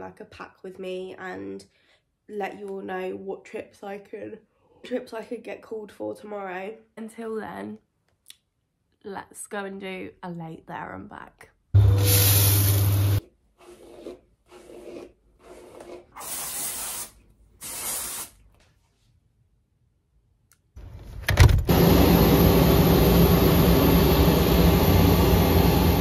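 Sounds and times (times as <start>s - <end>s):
aircraft engine drone: 21.6s - 26.0s
low machinery hum: 21.6s - 26.0s.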